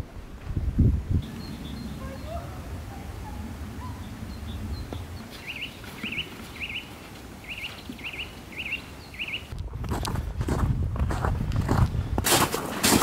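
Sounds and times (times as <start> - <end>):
songbird wavering call: 1.2 - 9.5.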